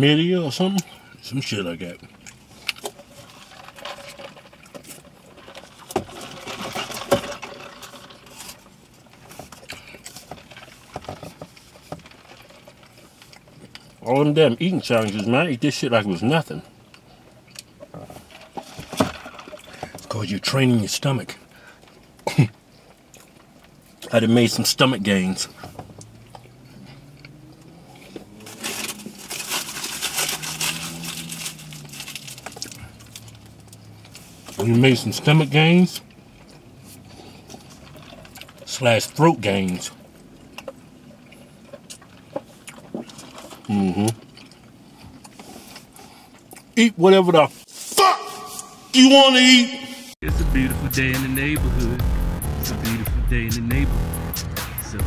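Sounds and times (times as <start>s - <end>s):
chewing and mouth noises: 8.4s - 14.0s, 21.8s - 24.1s, 25.8s - 29.4s, 36.0s - 38.7s, 39.9s - 46.8s
food wrapping crumpling: 28.4s - 34.3s.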